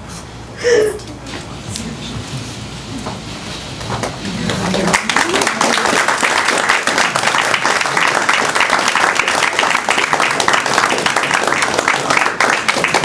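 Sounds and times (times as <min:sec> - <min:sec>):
audience applauding: 0:04.0 - 0:13.0.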